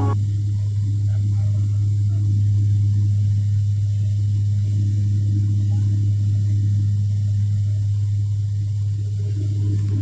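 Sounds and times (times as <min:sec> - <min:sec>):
high engine whine: 0:00.0 - 0:00.2.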